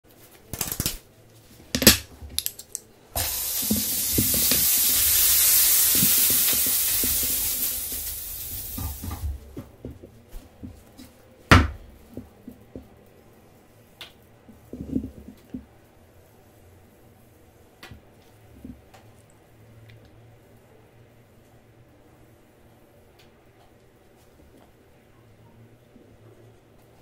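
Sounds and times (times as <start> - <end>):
hot griddle hissing: 3.2 - 9.7.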